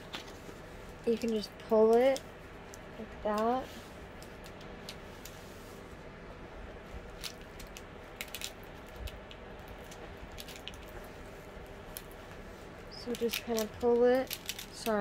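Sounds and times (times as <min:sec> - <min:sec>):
sharp plastic crackles: 0:01.0 - 0:05.4, 0:07.0 - 0:15.0
plastic film crinkling: 0:07.0 - 0:15.0.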